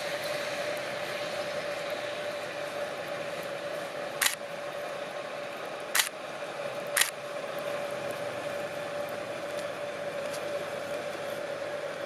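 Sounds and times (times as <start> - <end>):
steady rushing noise: 0.0 - 12.0
camera shutter clicks: 4.2 - 4.4, 7.0 - 7.2.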